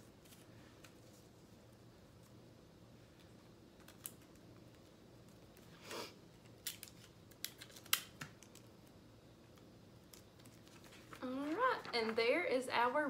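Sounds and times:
paper crinkles and clicks: 0:03.2 - 0:05.7, 0:06.4 - 0:12.2.

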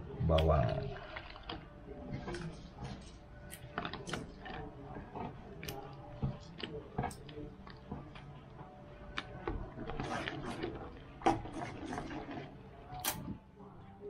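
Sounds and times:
sauce bubbles popping: 0:00.2 - 0:03.0.

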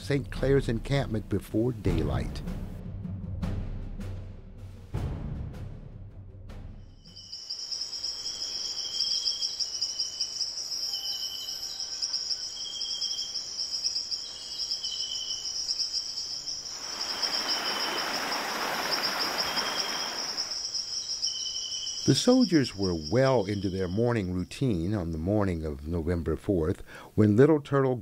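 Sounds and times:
insects trilling: 0:07.1 - 0:25.3
low chirping call: 0:07.1 - 0:25.9
stream running over rocks: 0:16.7 - 0:20.6.

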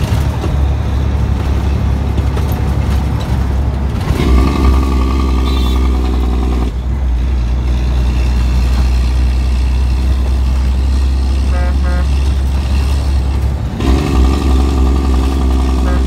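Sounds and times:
diesel engine droning: 0:00.0 - 0:16.0
truck horn toots: 0:04.2 - 0:06.8, 0:11.2 - 0:12.5, 0:13.8 - 0:16.0.

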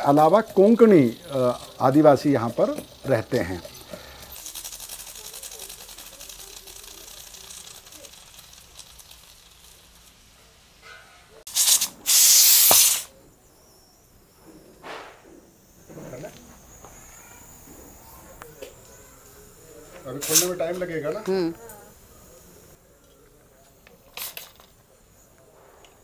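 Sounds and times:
steam hissing: 0:00.0 - 0:10.8, 0:11.5 - 0:13.2, 0:14.4 - 0:22.8
pressure cooker whistling: 0:11.5 - 0:13.1.

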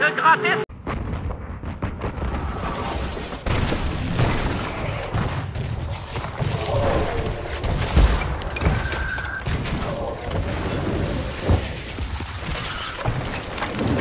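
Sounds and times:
artillery booms: 0:00.7 - 0:02.7.

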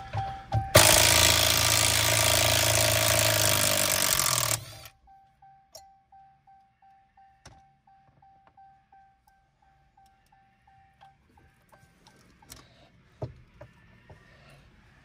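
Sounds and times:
impact tool hammering: 0:00.8 - 0:04.7
faint warning chime ticking: 0:04.8 - 0:12.9.

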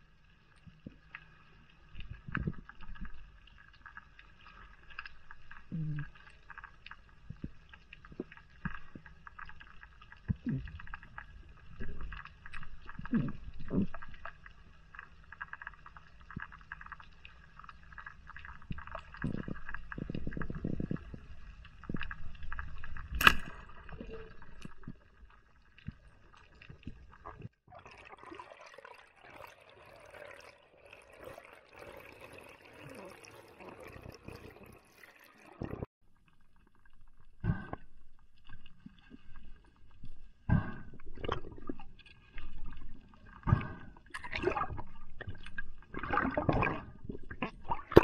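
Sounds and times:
underwater crackle and whine: 0:00.0 - 0:27.7, 0:28.9 - 0:48.0
bubbling water rushing: 0:25.9 - 0:35.9, 0:38.3 - 0:48.0.

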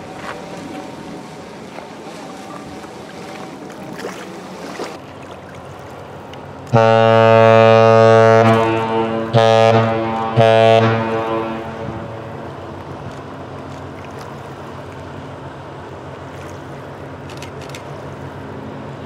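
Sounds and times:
deep ship's horn blasts: 0:06.6 - 0:13.6.

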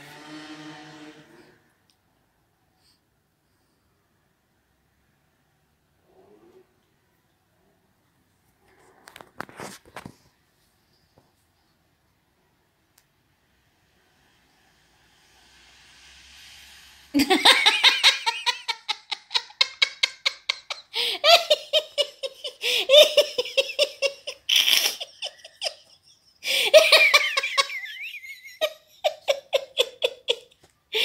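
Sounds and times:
person laughing hard: 0:17.2 - 0:31.0.

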